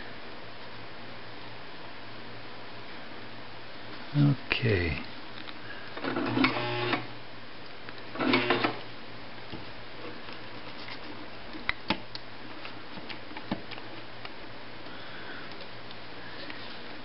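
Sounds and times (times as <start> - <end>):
sewing machine stitching: 8.2 - 8.8.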